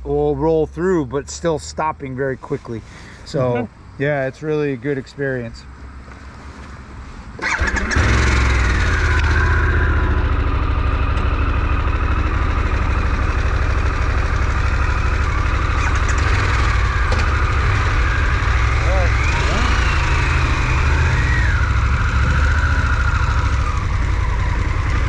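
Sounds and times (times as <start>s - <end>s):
motorcycle engine starting and running: 7.4s - 25.0s.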